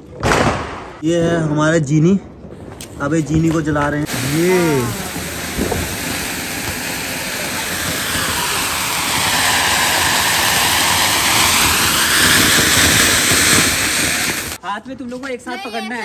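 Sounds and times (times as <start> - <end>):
firework fountain hissing: 4.0 - 14.6.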